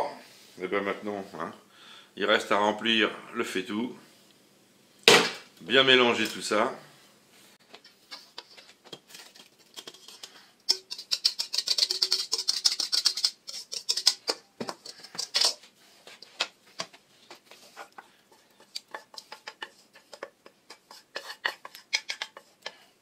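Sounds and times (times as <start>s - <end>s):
wooden spoon scraping pan: 7.8s - 16.3s, 17.3s - 23.0s
whisk scraping metal bowl: 8.2s - 15.7s, 17.5s - 23.0s.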